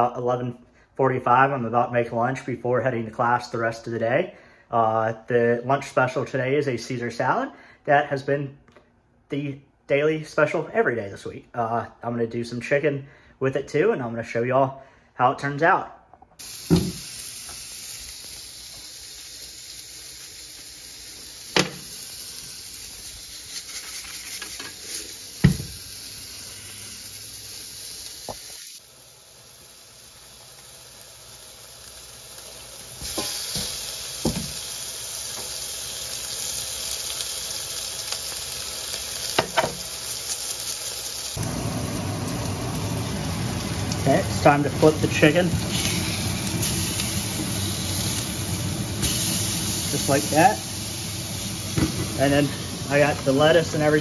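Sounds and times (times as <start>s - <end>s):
chicken sizzling in a skillet: 16.4s - 54.0s.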